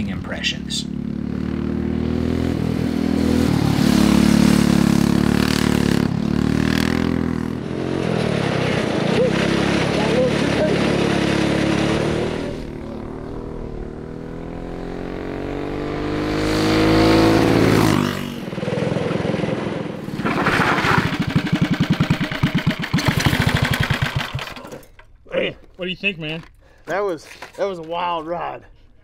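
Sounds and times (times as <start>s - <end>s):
kart engine passing at speed: 0.6s - 24.6s
kart engine idling: 18.6s - 25.0s.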